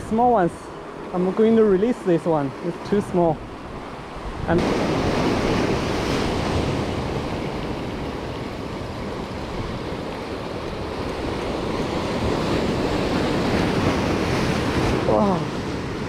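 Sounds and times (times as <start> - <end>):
wind rumble on microphone: 3.3 - 16.0
surf breaking over boulders: 4.3 - 16.0.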